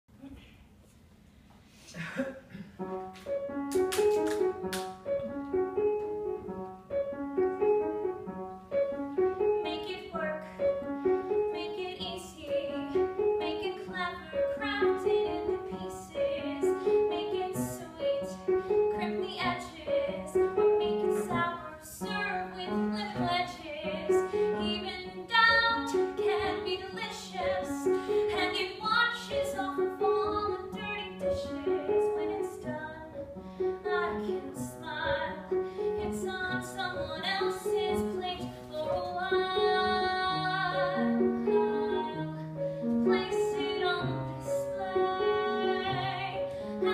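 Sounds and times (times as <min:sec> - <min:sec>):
piano accompaniment: 0:02.5 - 0:46.9
woman singing: 0:09.5 - 0:10.5, 0:11.3 - 0:33.2, 0:33.8 - 0:42.4, 0:43.0 - 0:46.9.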